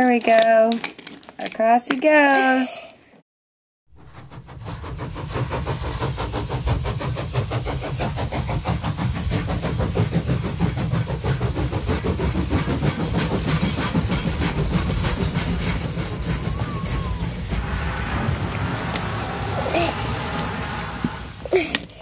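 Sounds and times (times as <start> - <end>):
toy train rattling on wooden track: 0.0 - 1.9, 4.8 - 17.6.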